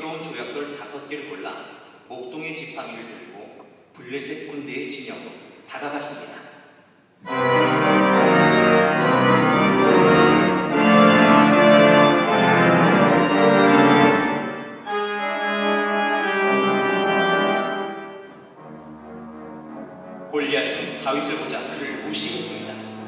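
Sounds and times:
pipe organ chords: 7.2 - 23.0.

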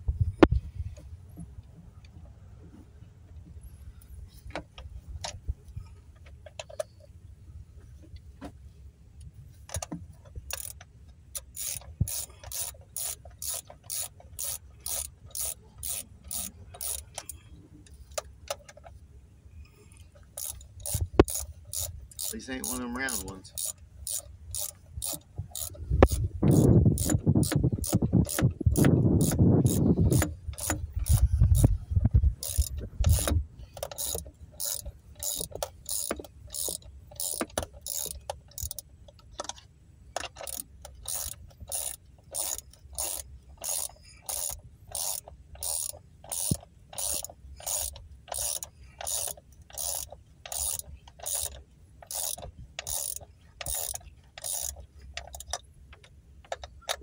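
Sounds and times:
ratchet wrench clicking: 9.7 - 18.8, 20.2 - 39.6, 40.2 - 57.0.

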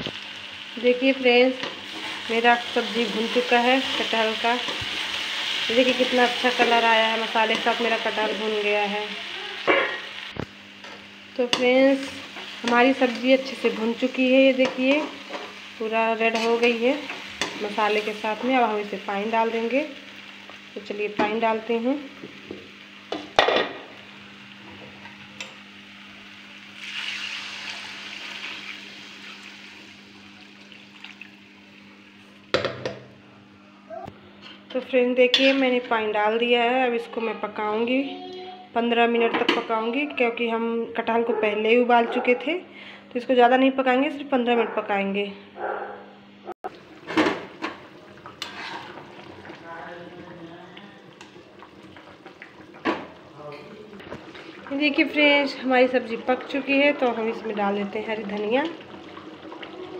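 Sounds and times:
water hissing in hot pan: 0.0 - 24.5, 26.0 - 30.7, 46.7 - 59.9
utensil scraping metal pot: 48.2 - 49.3.

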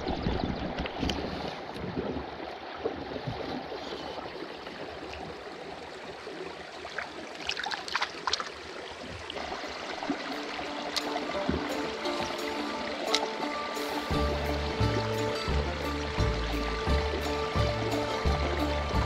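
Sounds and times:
creek water trickling: 0.0 - 19.0
small sharp splashes: 6.8 - 13.7.

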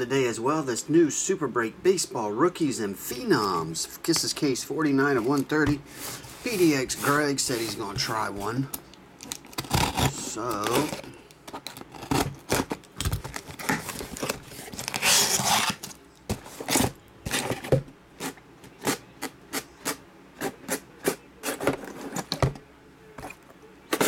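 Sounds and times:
cardboard scraping: 5.0 - 8.6, 9.6 - 17.8.

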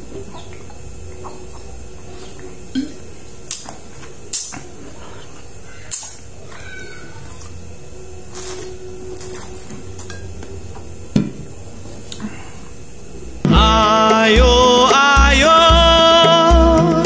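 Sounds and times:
steady low hum: 0.0 - 17.0
lip smacks: 3.4 - 6.6.

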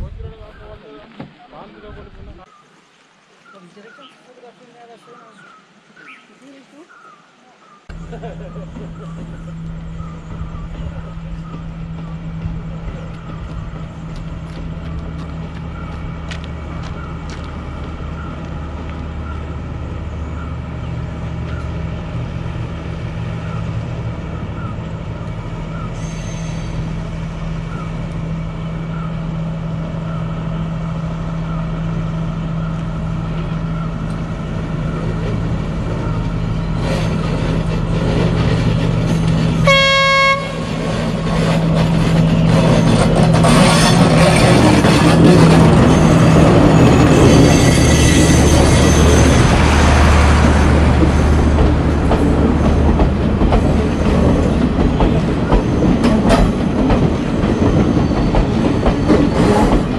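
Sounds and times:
train diesel engine hum: 7.9 - 59.9
train horn toot: 39.6 - 40.8.

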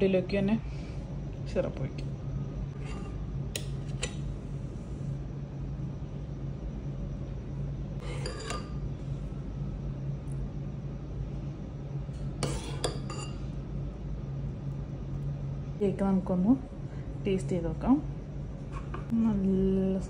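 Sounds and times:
steady low hum: 0.0 - 20.0
spoon clinking against bowl: 8.1 - 8.8, 12.4 - 13.4.

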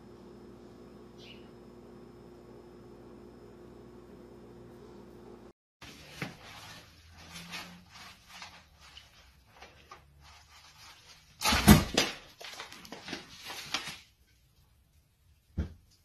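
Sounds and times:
envelope rustling through letterbox: 5.8 - 14.2
envelope thudding on floor: 11.4 - 14.0.

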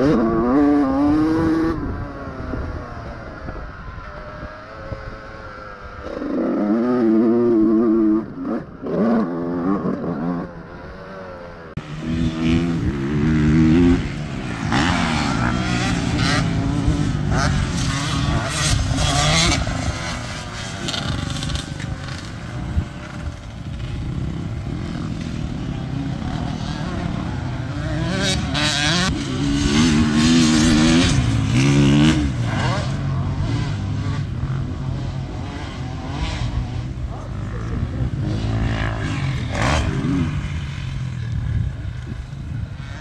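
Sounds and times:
motocross engine revving: 0.0 - 3.4, 6.0 - 43.0.

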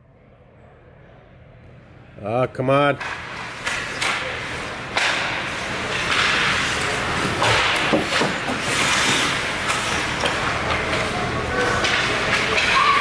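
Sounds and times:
hockey sticks and puck clacking: 3.0 - 13.0
skate blades scraping ice: 3.2 - 13.0.

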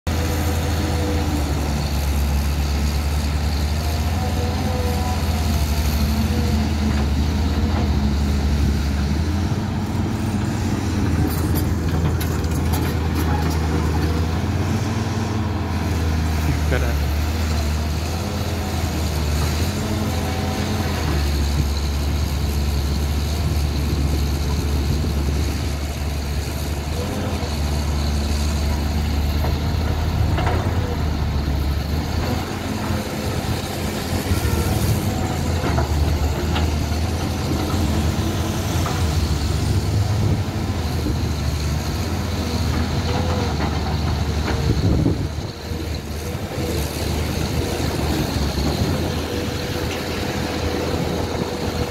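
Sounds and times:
excavator diesel engine humming: 0.0 - 51.9.

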